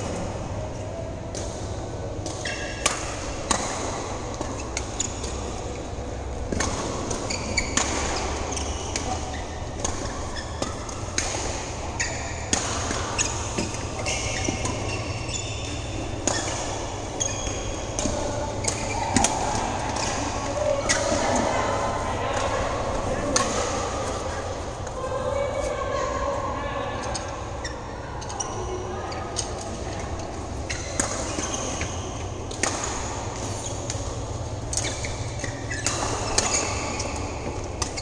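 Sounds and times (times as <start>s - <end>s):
rackets striking shuttlecock: 1.2s - 21.5s, 30.8s - 38.0s
sneakers squeaking on court: 2.4s - 3.0s, 6.5s - 19.1s, 30.6s - 32.3s, 33.5s - 38.0s.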